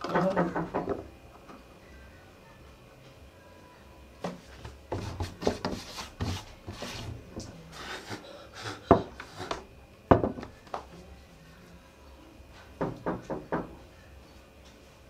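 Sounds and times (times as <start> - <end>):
knocks on table: 10.1 - 10.5.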